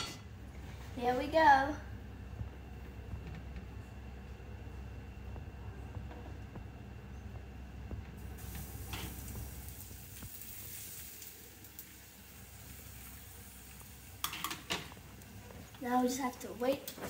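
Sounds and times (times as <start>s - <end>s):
gas burner rushing: 7.8s - 17.0s
batter sizzling in frying pan: 8.2s - 17.0s.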